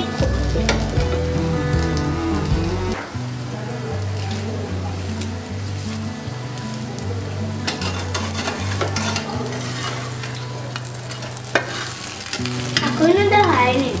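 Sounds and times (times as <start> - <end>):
batter sizzling in oil: 0.0 - 14.0
metal spatula scraping a pan: 7.7 - 10.4, 11.1 - 13.0.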